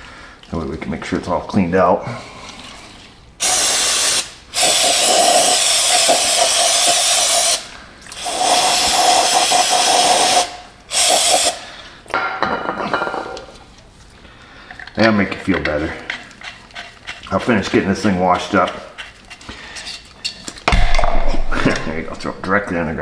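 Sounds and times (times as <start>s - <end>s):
aerosol spray hissing: 3.4s - 11.6s.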